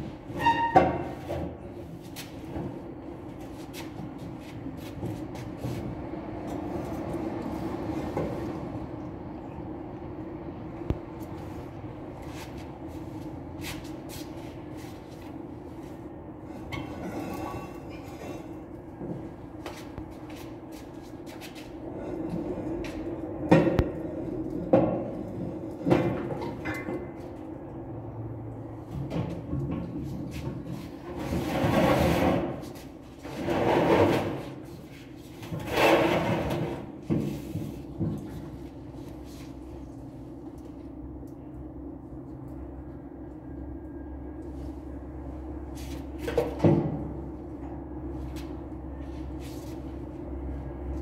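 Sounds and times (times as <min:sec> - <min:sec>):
low machine hum: 0:36.8 - 0:51.0.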